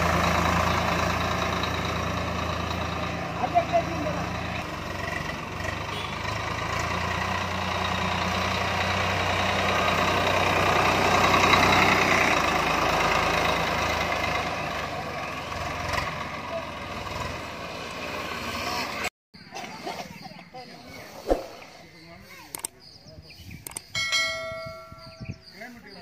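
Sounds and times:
tractor diesel engine running: 0.0s - 19.1s, 23.6s - 26.0s.

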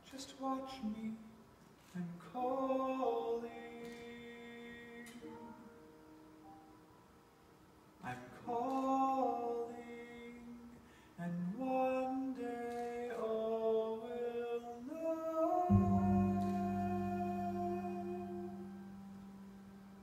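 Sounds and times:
deep low note: 15.7s - 19.1s.

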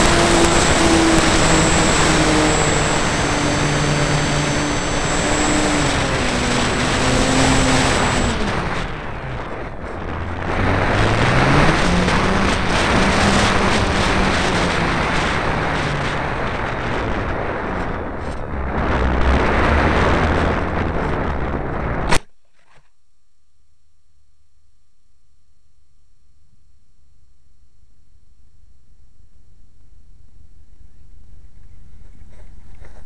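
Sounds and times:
motor and propeller whining: 0.0s - 22.2s
wind rushing over microphone: 0.0s - 22.2s
faint hum: 0.0s - 33.0s
sharp crack: 17.8s - 22.3s.

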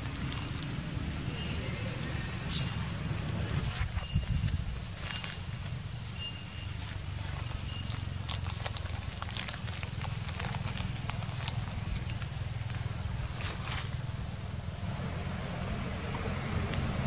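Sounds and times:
faint high peeps: 1.3s - 4.4s
branches and leaves crackling: 3.6s - 17.0s.

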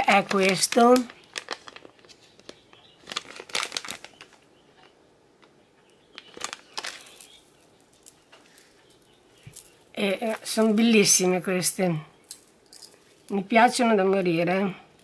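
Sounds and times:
plastic bag crinkling: 0.0s - 5.5s, 6.1s - 11.0s.

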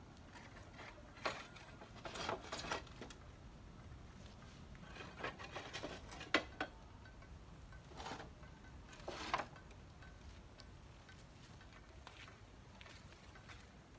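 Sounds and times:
wooden planks scraping: 0.3s - 3.2s, 4.8s - 6.5s, 9.0s - 9.6s.

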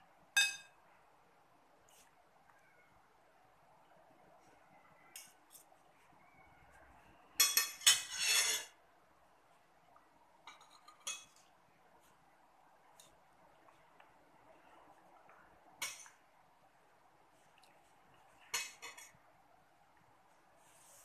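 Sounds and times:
cutlery clinking on ceramic plate: 0.4s - 0.7s, 7.4s - 8.8s, 10.5s - 11.5s, 18.5s - 19.1s.

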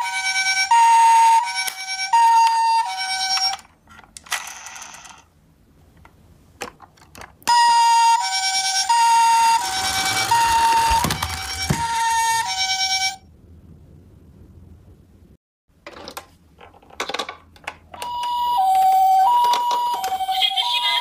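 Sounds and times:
toy ambulance siren: 0.0s - 3.7s, 7.5s - 13.2s, 18.0s - 21.0s.

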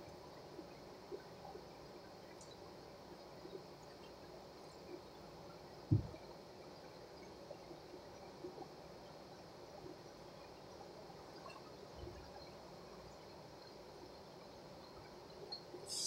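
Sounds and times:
dull low thump: 5.9s - 6.2s.

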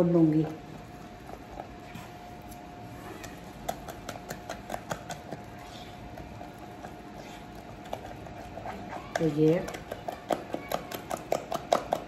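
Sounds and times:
faint steady hum: 0.0s - 12.0s
batter being beaten by hand: 7.9s - 12.0s.

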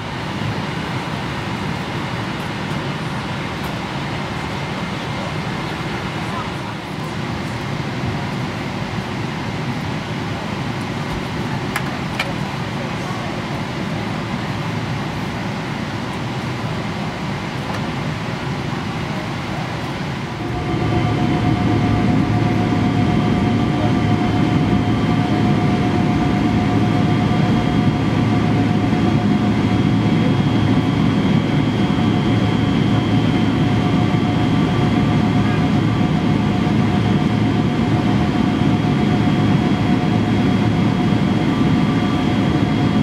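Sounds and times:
jet engine noise inside cabin: 0.0s - 43.0s
steady engine whining tones: 17.6s - 43.0s.

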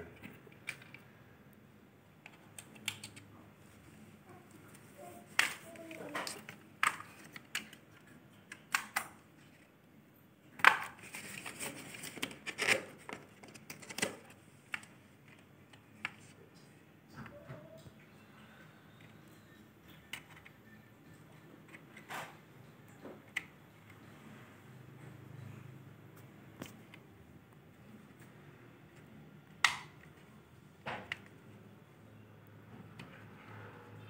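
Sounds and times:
cable and adapter clicks: 2.3s - 3.3s, 8.5s - 9.2s, 29.0s - 30.1s.

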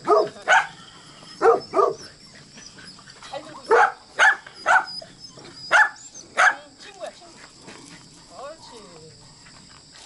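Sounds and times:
dog barking: 0.0s - 0.8s, 1.4s - 2.1s, 3.7s - 4.9s, 5.7s - 6.7s.

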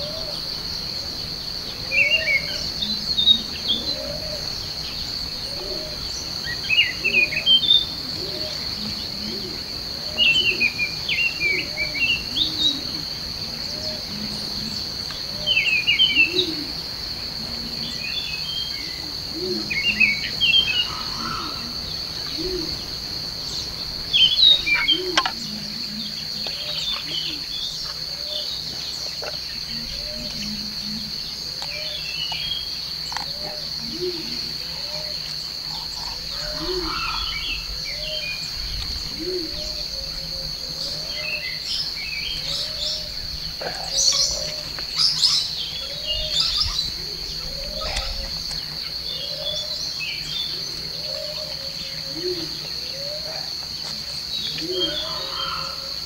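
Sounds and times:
bird chirping song: 0.0s - 56.0s
insect drone: 0.0s - 56.0s.

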